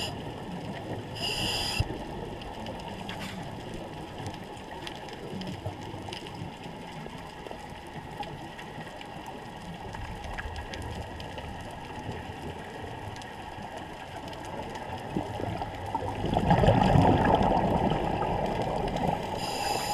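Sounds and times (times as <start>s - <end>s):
muffled underwater ambience: 0.0s - 19.9s
diver exhaling bubbles: 16.0s - 19.9s.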